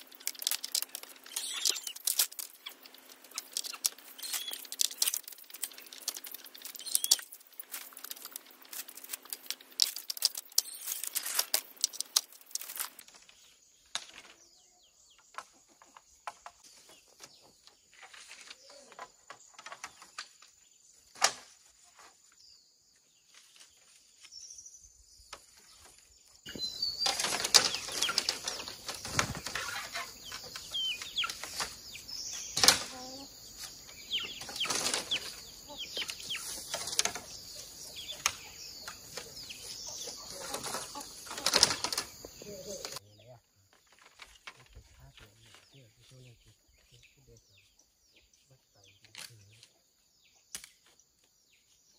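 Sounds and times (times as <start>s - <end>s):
bamboo strips clacking and rattling: 0.0s - 14.4s, 15.2s - 22.2s, 27.0s - 43.0s, 43.7s - 45.7s, 49.1s - 49.7s.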